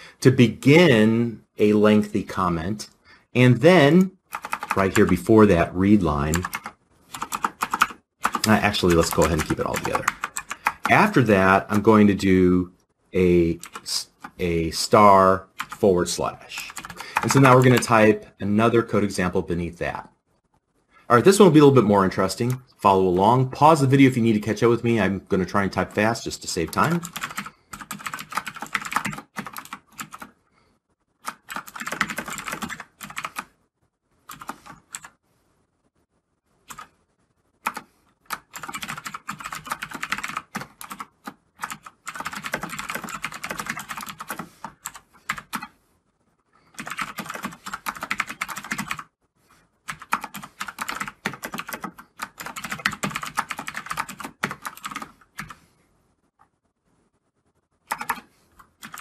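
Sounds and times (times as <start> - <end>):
fast typing on computer keyboard: 4.3 - 5.4, 6.2 - 11.8, 13.6 - 14.4, 15.6 - 15.8, 16.6 - 18.0, 25.8 - 30.4, 31.2 - 33.5, 34.3 - 35.2, 36.7 - 36.9, 37.6 - 45.7, 46.7 - 49.1, 49.9 - 55.6, 57.9 - 59.0.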